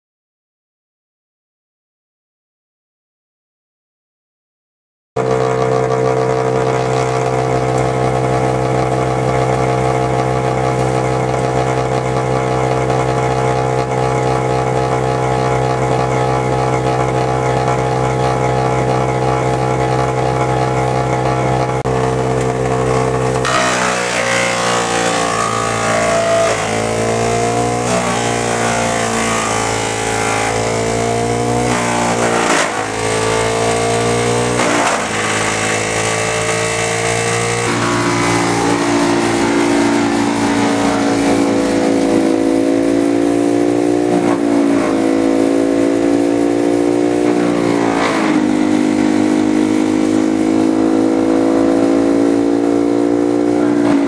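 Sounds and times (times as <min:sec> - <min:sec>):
wood chipper engine running: 0:05.2 - 0:52.0
rough chipping noise: 0:21.8 - 0:42.3.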